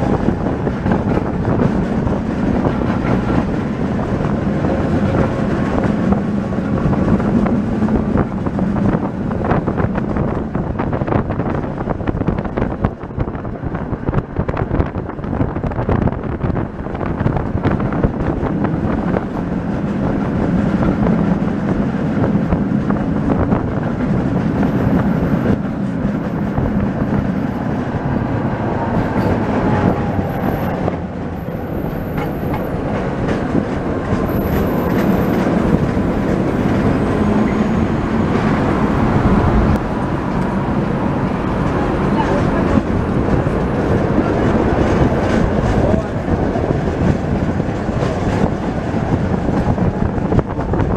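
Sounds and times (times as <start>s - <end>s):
tram wheels rumbling on rails: 0.0s - 50.9s.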